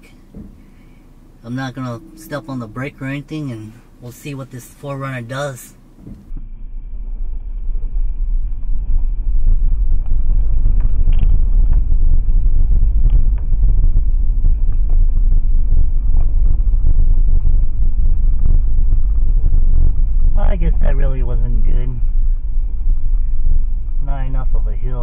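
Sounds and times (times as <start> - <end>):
faint steady high tone: 0.0 - 5.8
vehicle rolling on gravel rumble: 6.1 - 25.0.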